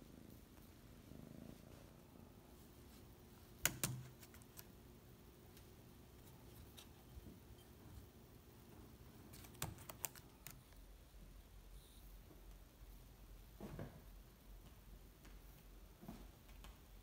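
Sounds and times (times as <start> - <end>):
kitten tapping laptop: 3.6 - 4.6.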